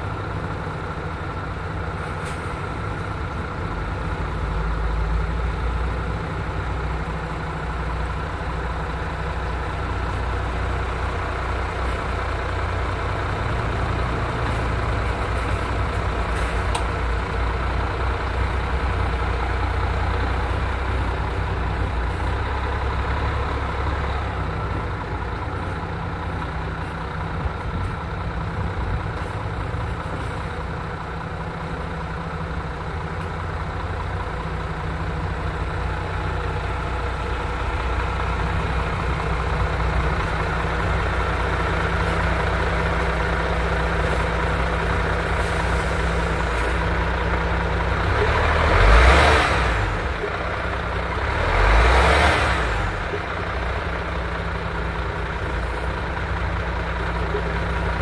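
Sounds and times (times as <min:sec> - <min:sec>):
diesel truck engine droning: 0:00.0 - 0:58.0.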